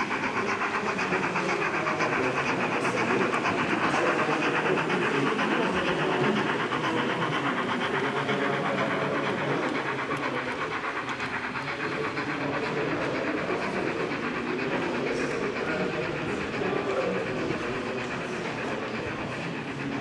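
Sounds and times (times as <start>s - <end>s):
model steam locomotive chuffing: 0.0s - 20.0s
model train wheels on track: 0.0s - 20.0s.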